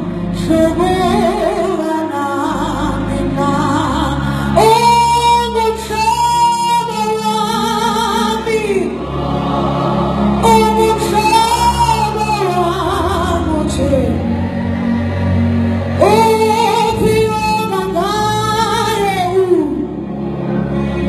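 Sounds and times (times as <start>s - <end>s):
youth choir singing gospel: 7.2s - 13.3s.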